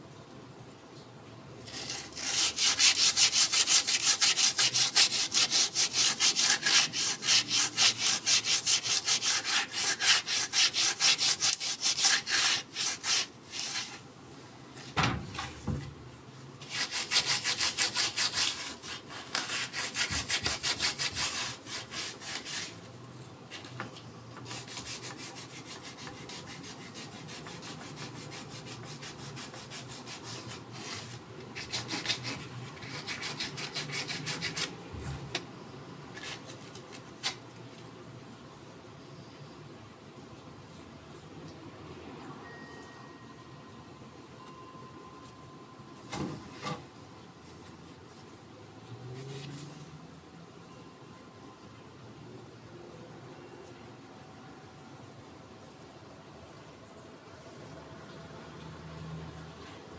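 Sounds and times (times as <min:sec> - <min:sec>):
sandpaper rubbing on wood: 0:01.7 - 0:14.0, 0:16.6 - 0:22.8.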